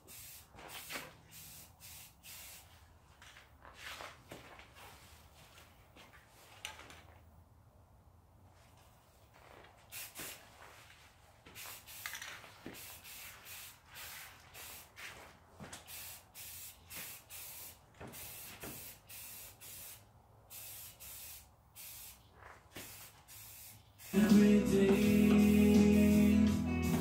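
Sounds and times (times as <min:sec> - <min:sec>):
aerosol can spraying: 0:00.0 - 0:02.7, 0:09.9 - 0:10.4, 0:11.6 - 0:14.9, 0:15.9 - 0:22.2, 0:22.8 - 0:27.0.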